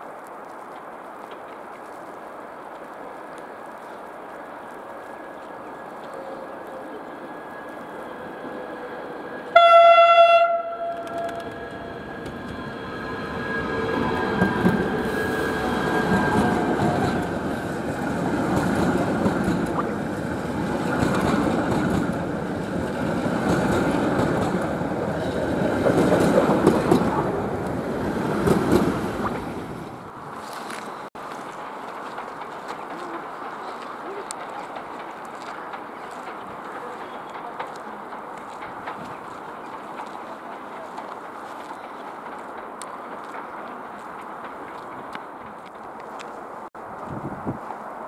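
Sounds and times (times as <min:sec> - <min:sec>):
train horn blast: 0:09.5 - 0:11.9
wheels clattering over rail joints: 0:31.4 - 0:46.1.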